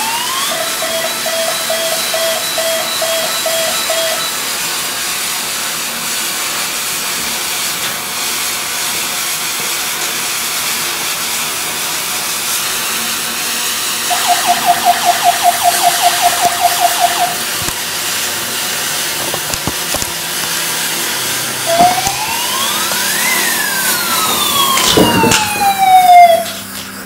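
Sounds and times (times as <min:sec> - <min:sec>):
toy fire truck siren: 0:00.0 - 0:04.5, 0:14.0 - 0:17.7, 0:21.6 - 0:26.8
firework fountain hissing: 0:04.3 - 0:27.0.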